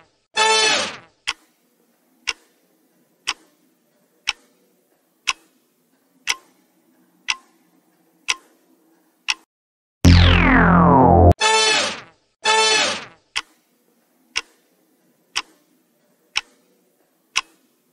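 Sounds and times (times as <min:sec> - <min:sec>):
falling pitch sound effect: 0:10.0 - 0:11.4
countdown timer ticking: 0:10.1 - 0:11.4.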